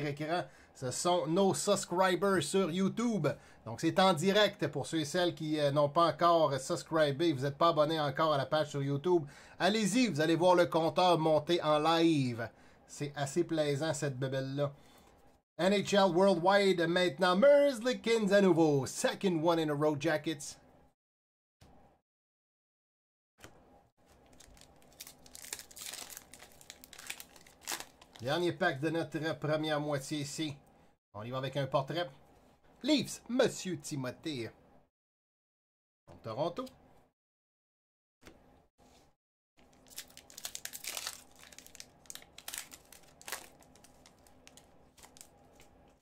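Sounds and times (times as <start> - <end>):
card pack wrapper tearing and crinkling: 24.1 - 28.3, 39.6 - 45.8.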